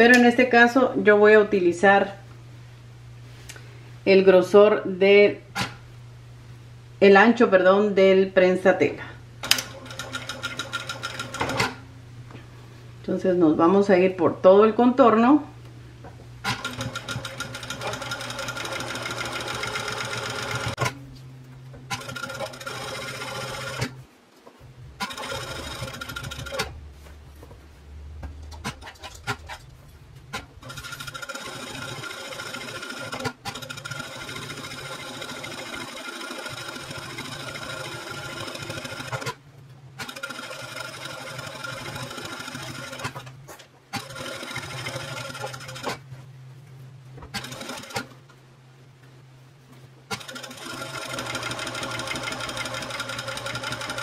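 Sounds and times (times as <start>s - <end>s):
sewing machine stitching: 9.4s - 11.8s, 16.4s - 21.0s, 21.9s - 24.0s, 25.0s - 26.8s, 30.3s - 39.4s, 40.0s - 43.3s, 43.9s - 46.0s, 47.3s - 48.1s, 50.1s - 54.0s.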